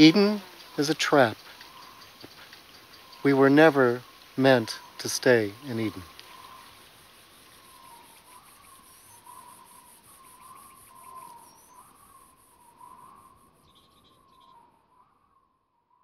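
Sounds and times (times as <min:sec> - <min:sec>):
insects chirping: 0:00.0 - 0:15.4
bird chirps: 0:00.0 - 0:16.0.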